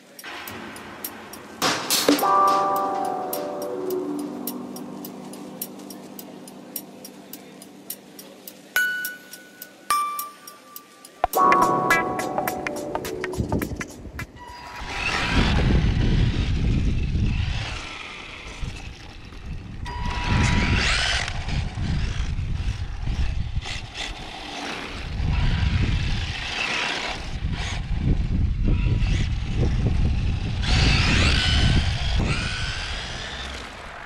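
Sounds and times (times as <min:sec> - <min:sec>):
toy car electric motor whining: 0:14.6 - 0:34.0.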